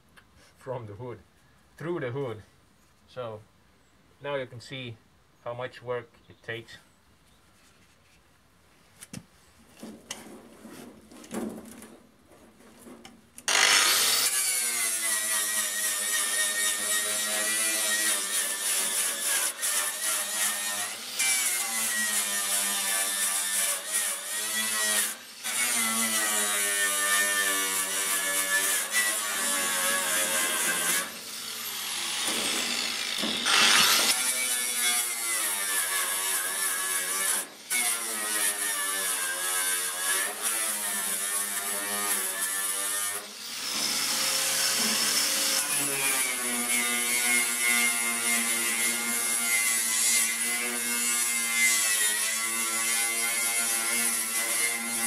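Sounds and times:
angle grinder wire brush on metal: 12.8 - 55.0.

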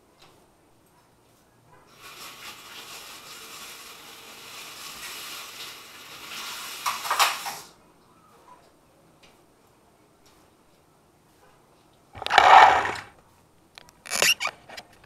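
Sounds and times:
steady hiss: 1.9 - 7.8
loud clatters: 12.2 - 13.1.

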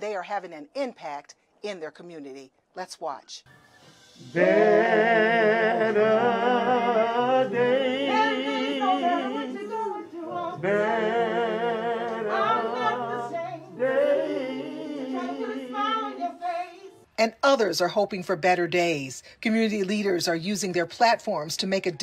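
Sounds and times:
voices singing in harmony: 3.8 - 17.1.

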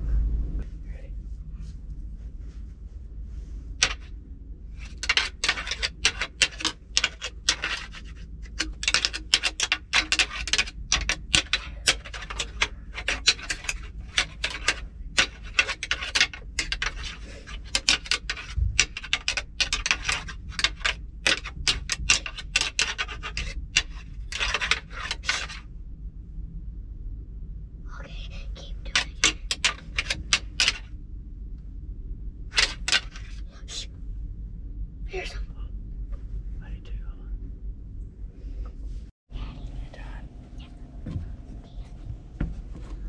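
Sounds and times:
antlers clacking and scraping: 3.8 - 4.1, 4.7 - 25.7, 28.3 - 30.9, 32.5 - 33.9.

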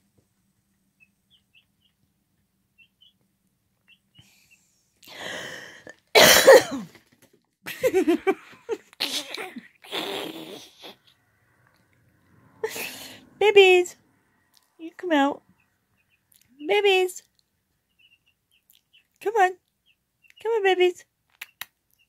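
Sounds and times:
baby chicks peeping: 0.7 - 4.7, 13.6 - 22.0
person coughing hard: 6.1 - 6.9.

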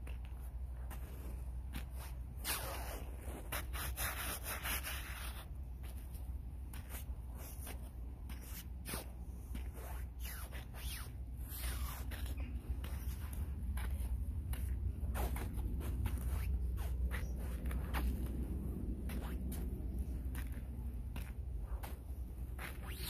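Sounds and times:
scuffs and clicks: 0.0 - 23.0
clothing rubbing on microphone: 0.1 - 23.0
low rumble: 12.3 - 22.6.

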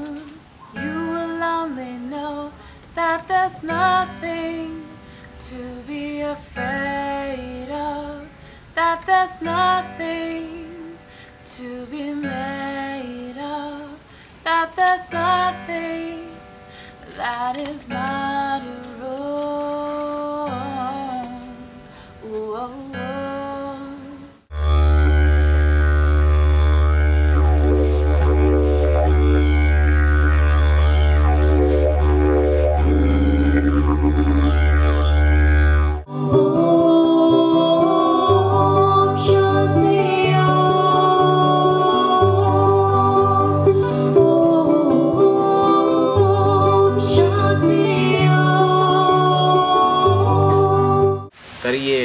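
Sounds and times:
ukulele: 0.0 - 2.4, 36.1 - 51.3
didgeridoo drone: 24.5 - 51.3
slow group singing: 36.1 - 51.3.

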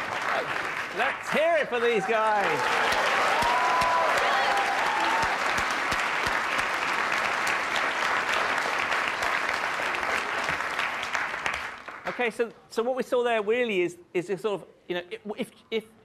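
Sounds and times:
audience applauding: 0.0 - 12.4.

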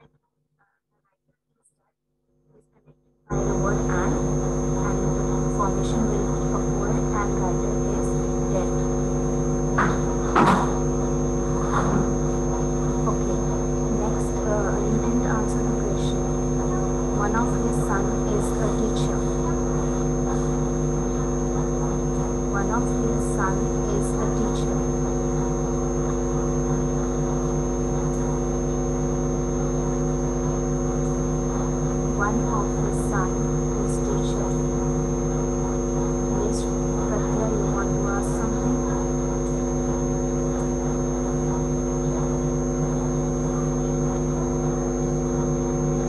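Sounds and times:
electrical mains hum: 2.5 - 46.0
thin high whine: 3.3 - 46.0.

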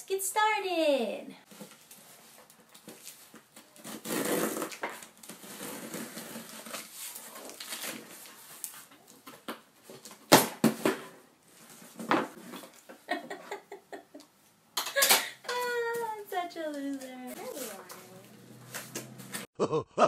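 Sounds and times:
packing tape torn open: 2.7 - 9.2
cardboard rustling: 15.8 - 19.5.

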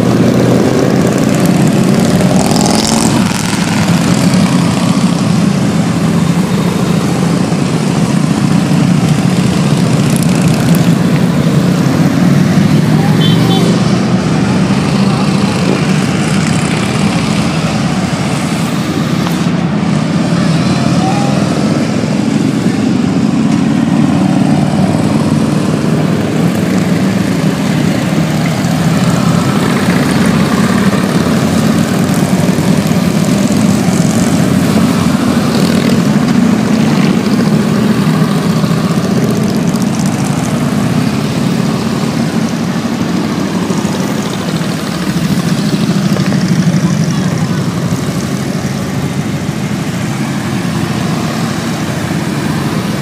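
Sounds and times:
motorcycles rumbling past: 0.0 - 53.0.

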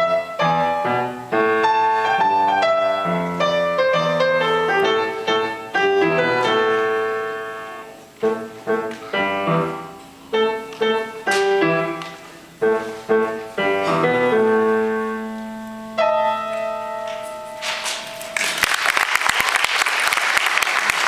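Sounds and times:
upright piano chords: 0.0 - 18.6
audience applause: 18.4 - 21.0.

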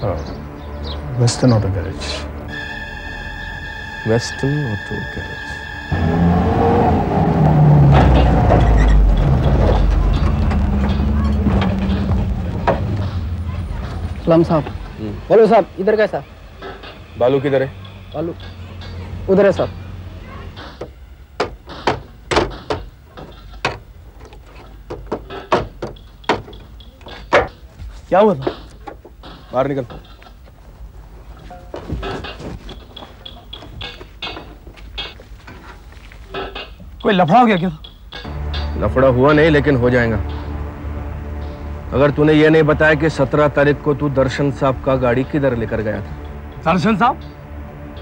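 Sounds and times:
engine low rumble: 3.1 - 21.4, 38.2 - 48.0
sharp knocks: 20.6 - 23.9, 24.8 - 27.6.

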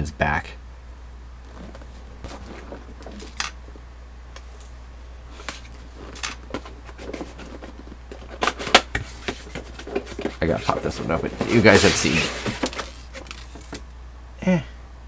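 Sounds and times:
steady low hum: 0.0 - 15.0
cardboard box knocks and scrapes: 6.5 - 13.1.

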